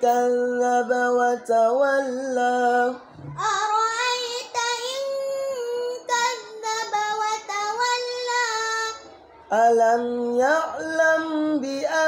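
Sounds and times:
boy chanting recitation: 0:00.0 - 0:12.0.

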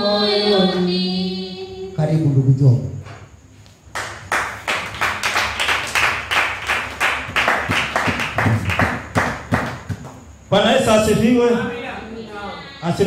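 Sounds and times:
people clapping in rhythm: 0:03.9 - 0:10.3.

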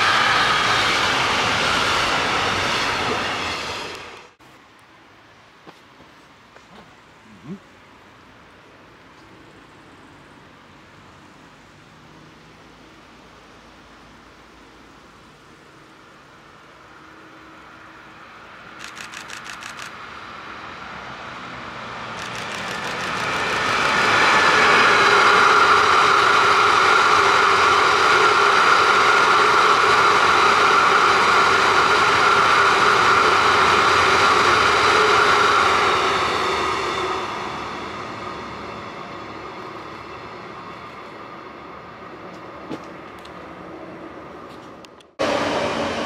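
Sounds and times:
train wheels running on rails: 0:00.0 - 0:04.4, 0:16.0 - 0:46.0
high-pitched whine: 0:22.1 - 0:42.2
rapid clicking: 0:22.2 - 0:23.9.

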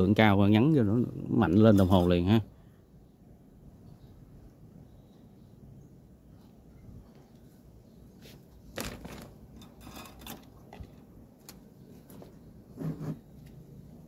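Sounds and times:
small tools clicking and knocking: 0:08.8 - 0:11.6.

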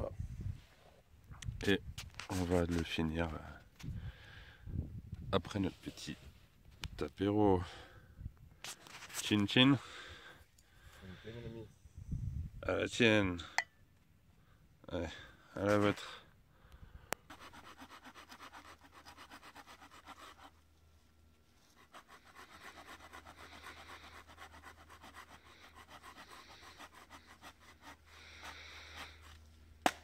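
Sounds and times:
hand saw cutting branch: 0:17.3 - 0:20.7, 0:21.6 - 0:30.0.

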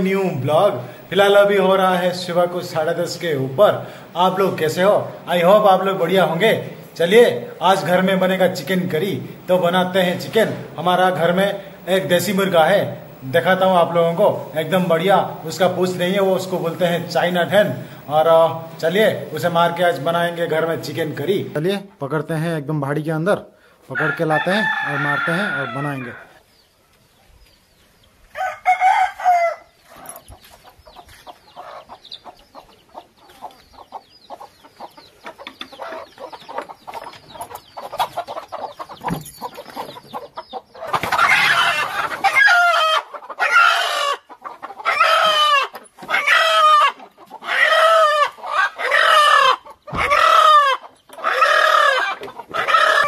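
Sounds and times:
chickens clucking: 0:00.0 - 0:21.7, 0:23.8 - 0:53.0
rooster squawking loudly: 0:40.8 - 0:53.0.

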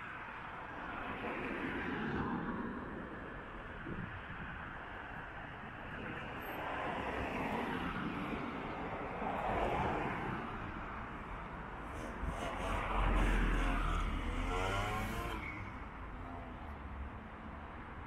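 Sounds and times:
cars passing on asphalt: 0:00.0 - 0:18.0.

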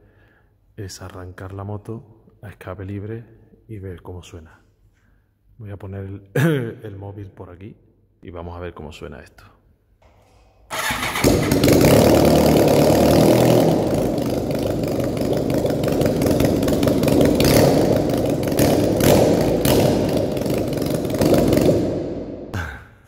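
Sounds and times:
unsilenced motorcycle engine idling: 0:10.0 - 0:22.2
engine cranking: 0:10.3 - 0:21.7.

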